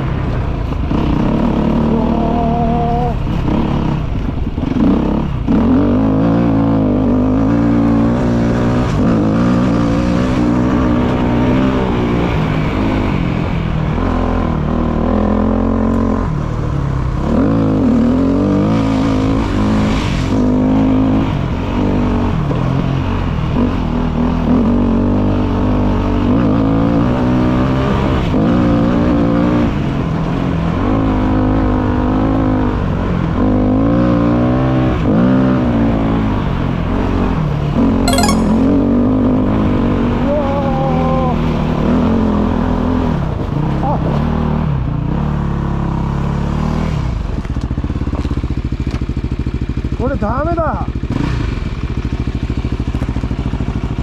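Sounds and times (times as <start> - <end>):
motorcycle engine revving: 0.8 - 16.3.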